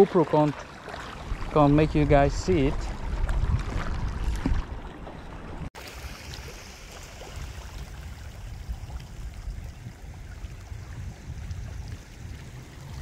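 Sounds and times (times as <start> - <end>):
choppy water lapping: 0.0 - 13.0
constant low rumble: 7.0 - 13.0.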